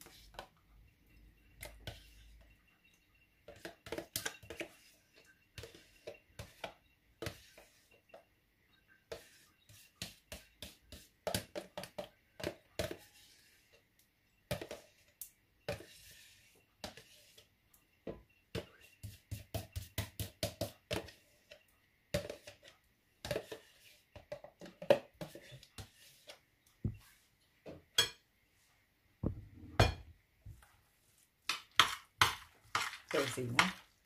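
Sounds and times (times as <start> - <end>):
spoon scraping plastic tub: 0.0 - 0.6, 1.6 - 2.6, 3.4 - 8.3, 9.1 - 13.8, 14.5 - 17.5, 18.6 - 27.4, 31.4 - 34.0.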